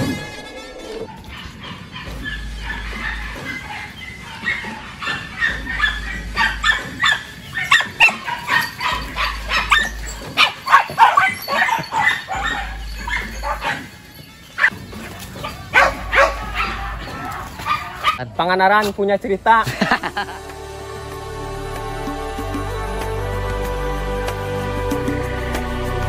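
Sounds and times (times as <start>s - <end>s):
dogs barking and yipping: 0.0s - 18.2s.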